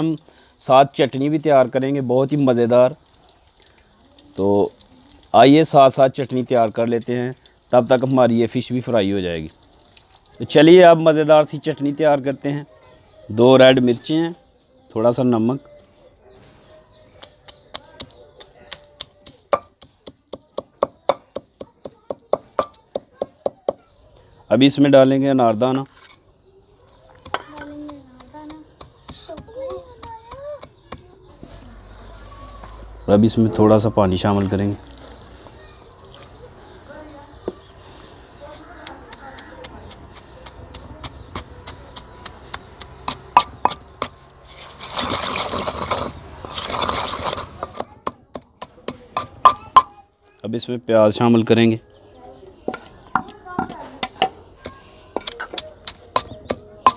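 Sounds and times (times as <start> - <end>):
pestle pounding in stone mortar: 18.8 - 23.8, 39.1 - 44.2, 44.9 - 49.9, 52.7 - 56.9
wet crunching grind: 34.2 - 36.9, 37.9 - 48.0.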